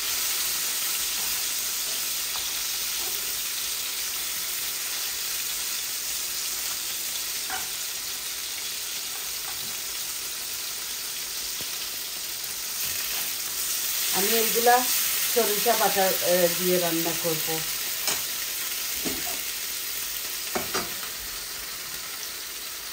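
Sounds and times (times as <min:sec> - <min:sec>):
fish sizzling in hot oil: 0:00.0 - 0:22.9
spatula scraping a pan: 0:12.8 - 0:14.1.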